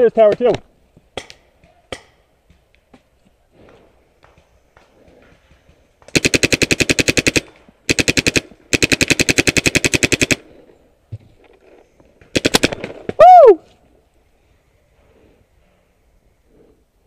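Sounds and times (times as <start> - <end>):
paintball marker rapid firing: 5.1 - 10.4, 12.3 - 13.0.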